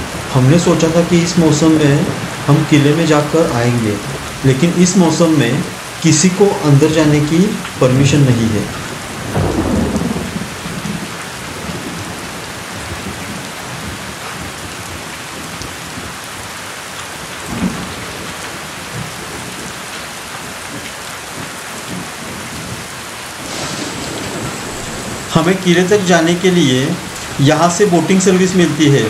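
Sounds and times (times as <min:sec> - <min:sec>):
heavy rain: 0:00.0 - 0:29.0
wind buffeting microphone: 0:23.4 - 0:25.6.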